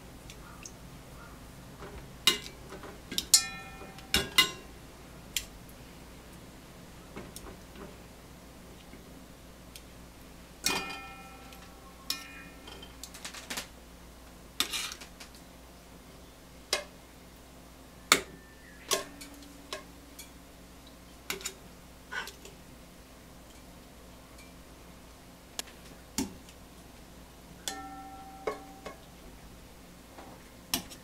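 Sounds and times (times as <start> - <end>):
metal tongs clinking on pots: 2.3 - 4.7, 10.6 - 13.1, 18.9 - 20.4, 21.3 - 22.6, 27.6 - 29.1.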